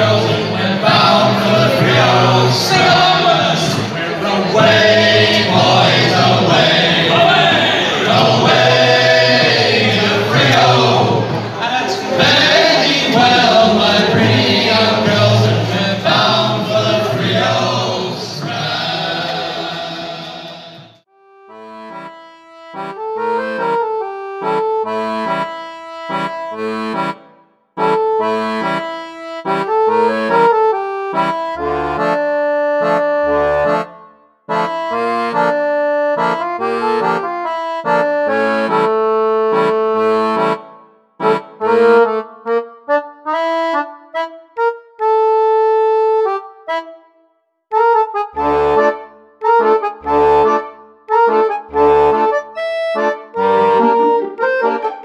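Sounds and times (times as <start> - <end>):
group singing: 0.0 - 21.0
accordion tune: 0.0 - 55.0.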